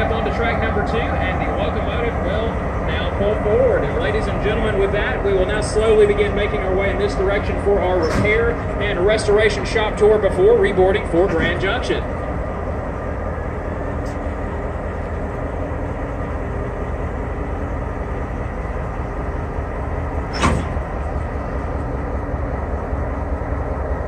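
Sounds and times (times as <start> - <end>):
locomotive engine rumbling: 0.0 - 24.0.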